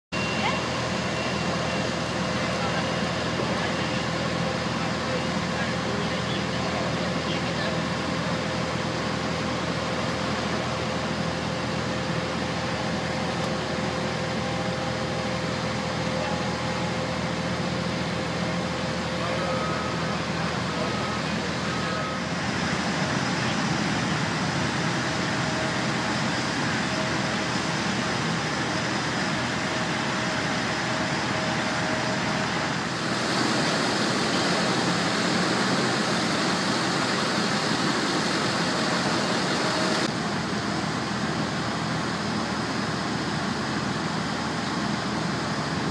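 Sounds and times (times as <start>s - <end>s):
machinery rushing drone: 14.0s - 42.2s.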